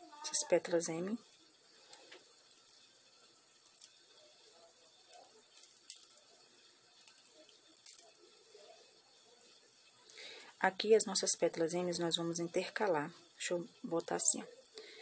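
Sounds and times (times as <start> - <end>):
hands handling craft wire: 5.1 - 6.3.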